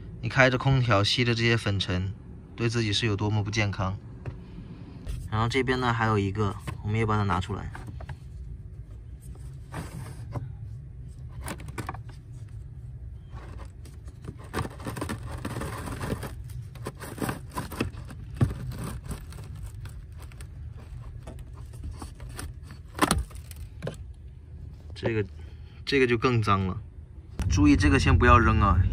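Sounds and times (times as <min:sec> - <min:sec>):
steady low hum: 0:00.0 - 0:28.9
plastic filter scraping and knocking: 0:13.2 - 0:24.0.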